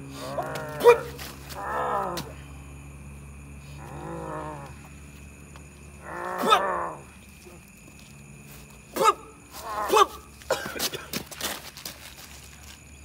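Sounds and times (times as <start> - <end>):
wordless human cries: 9.0 - 10.3.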